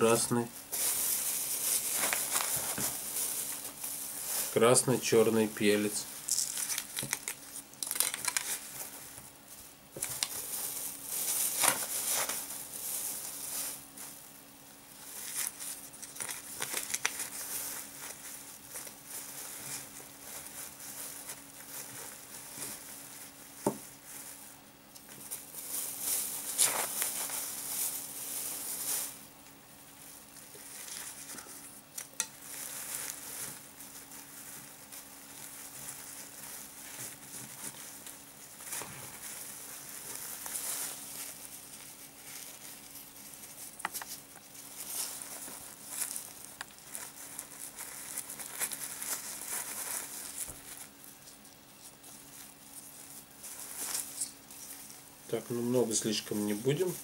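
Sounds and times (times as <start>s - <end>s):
faint steady hum: 0.0s - 57.0s
plastic bags crinkling: 0.0s - 57.0s
pepper pattering into bag: 6.2s - 8.6s.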